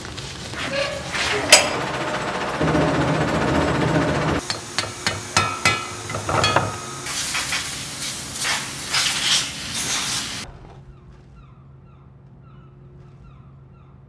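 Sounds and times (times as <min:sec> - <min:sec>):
ringing metal knocks: 0:01.5 - 0:07.1.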